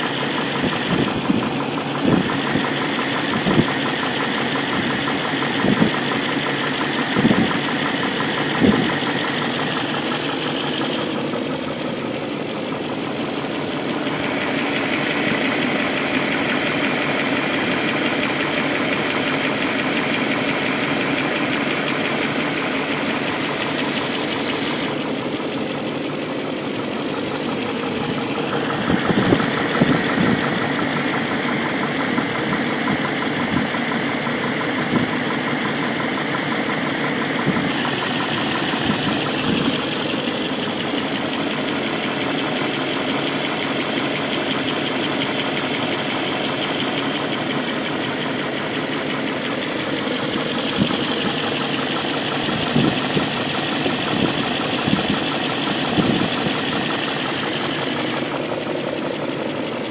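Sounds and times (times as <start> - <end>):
car engine idling: 0.0 - 59.9
sharp engine knocks: 0.4 - 10.3, 27.6 - 42.2, 49.8 - 58.3.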